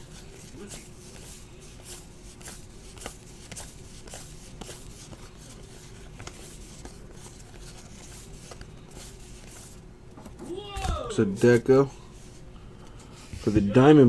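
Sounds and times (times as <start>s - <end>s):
steady low hum: 0.0s - 14.0s
cards clicking and sliding: 0.1s - 9.8s.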